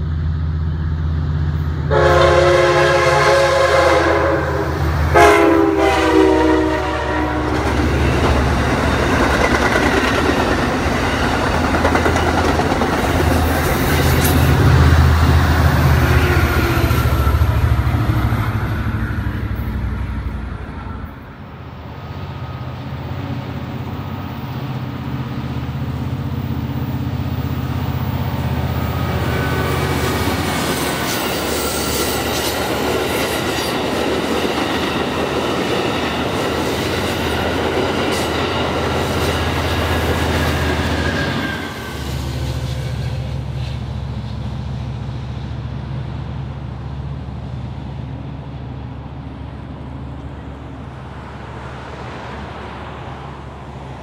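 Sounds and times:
diesel locomotive rumble: 0.0 - 54.0
multi-note train horn: 1.8 - 7.8
train wheels clattering on rails: 7.4 - 19.0, 27.9 - 44.0.

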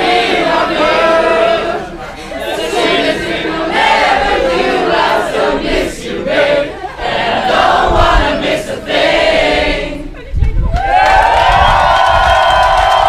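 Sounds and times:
crowd of young people singing: 0.0 - 10.3.

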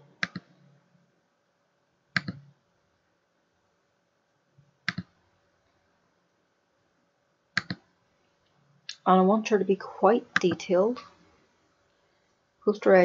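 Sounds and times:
computer mouse clicking: 0.2 - 0.6, 2.2 - 2.5, 4.8 - 5.2, 7.6 - 7.9.

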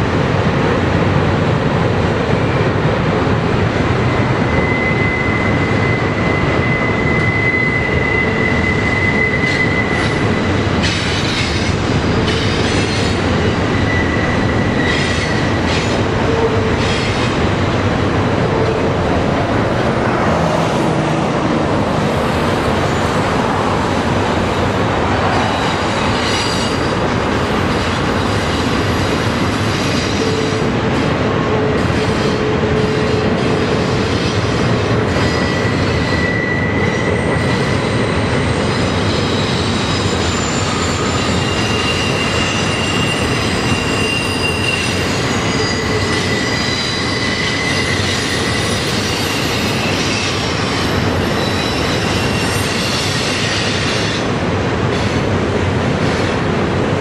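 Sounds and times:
train wheels rumbling on rail: 0.0 - 57.0
high wheel squeals: 4.1 - 17.6, 25.2 - 30.7, 31.8 - 54.3.

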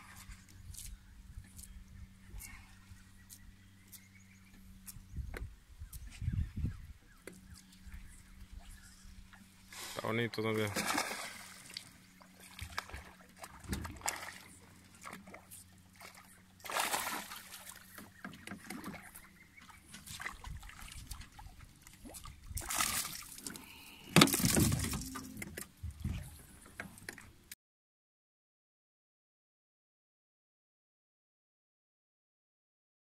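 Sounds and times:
fish splashing and thrashing: 10.6 - 27.2.

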